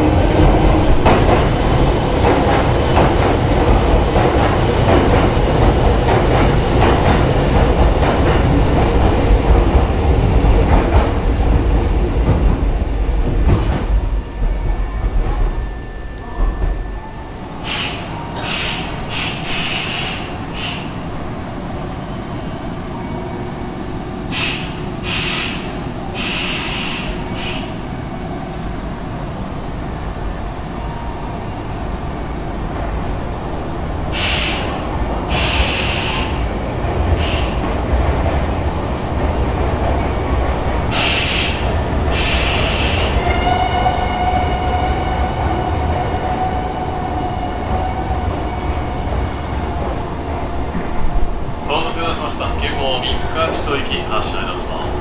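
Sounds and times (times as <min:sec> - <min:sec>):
short sharp air hisses: 0:17.7 - 0:20.9, 0:24.3 - 0:27.8.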